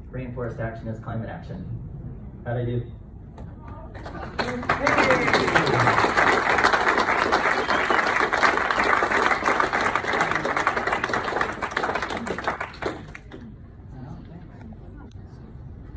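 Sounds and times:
audience applauding: 4.0 - 13.4.

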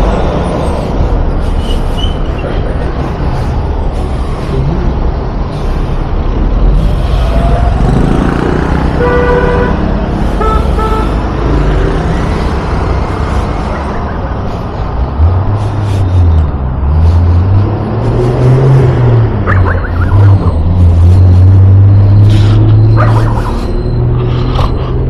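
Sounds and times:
traffic engines rumbling: 0.0 - 25.0
vehicle horn honking: 9.0 - 9.8, 10.4 - 11.2
deep engine drone: 9.0 - 25.0.

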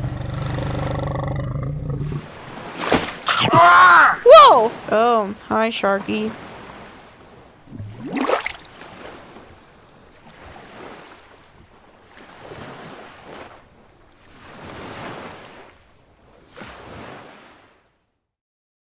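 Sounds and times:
ocean waves washing: 0.0 - 17.9.

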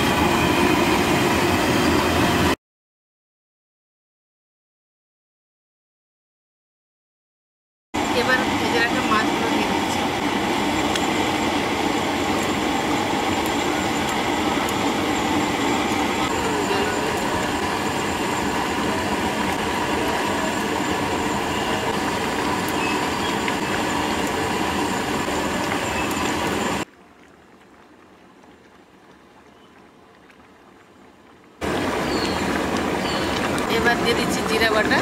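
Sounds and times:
gas burner roaring: 0.0 - 2.6, 8.0 - 26.9, 31.6 - 35.0
faint hum: 8.0 - 35.0.

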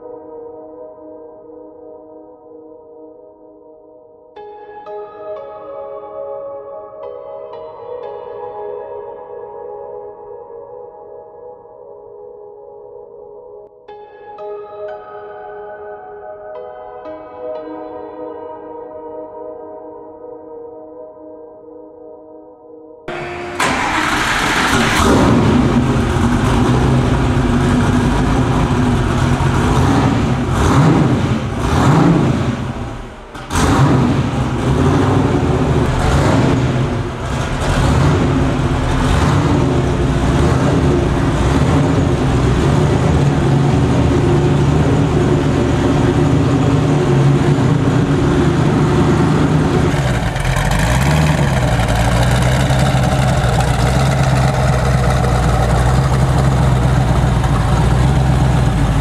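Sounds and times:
car engine revving and idling: 23.1 - 59.0.

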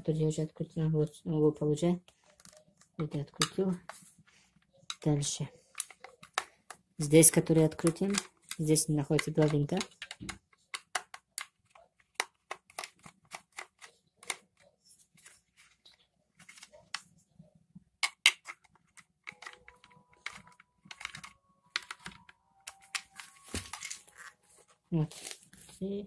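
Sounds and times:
screwdriver clicks and taps: 7.8 - 14.4, 18.0 - 23.9.

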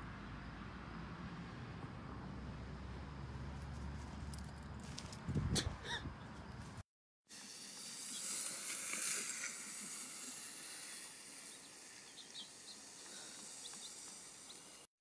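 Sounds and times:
faint outdoor hiss: 7.3 - 14.9.

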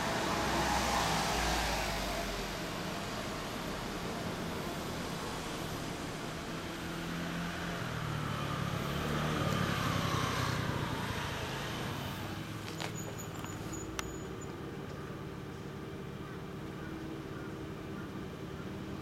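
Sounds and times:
passing vehicle whine: 0.0 - 19.0
motorcycle engine idling: 12.2 - 19.0.

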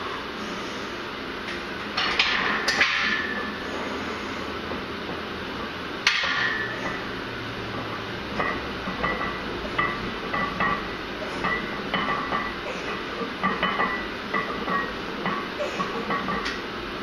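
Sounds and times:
weight plates clinking: 7.7 - 16.6.

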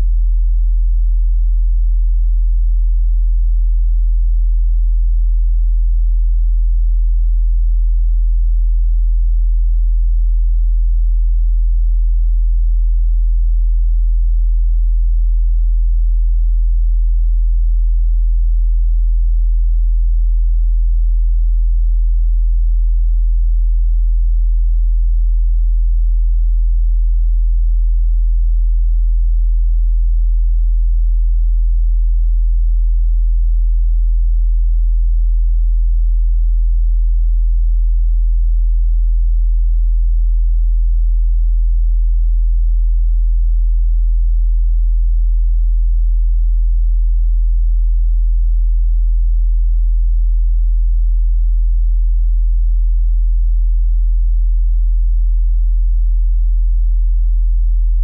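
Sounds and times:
very low sine tone: 0.0 - 42.1, 42.7 - 46.4, 57.6 - 58.0.

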